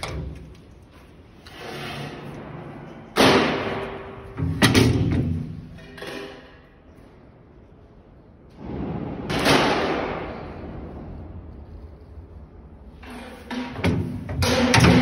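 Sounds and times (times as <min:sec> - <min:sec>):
metal door scraping slide: 0:01.3 - 0:03.8.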